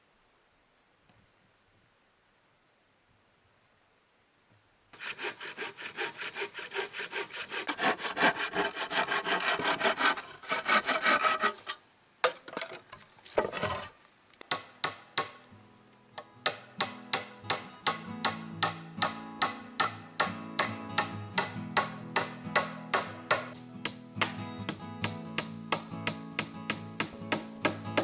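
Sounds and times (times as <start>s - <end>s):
bow saw cutting wood: 5.0s - 11.8s
sharp knocks: 16.5s - 23.6s.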